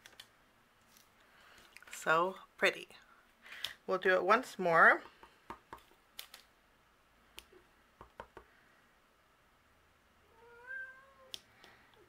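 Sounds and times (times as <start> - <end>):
stamp block tapping: 8.0 - 8.5
pet whining cry: 10.3 - 11.4.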